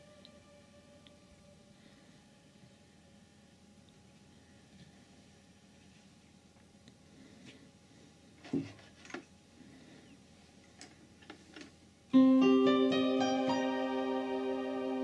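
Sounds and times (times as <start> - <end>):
synth keyboard run and chord: 12.2 - 15.0.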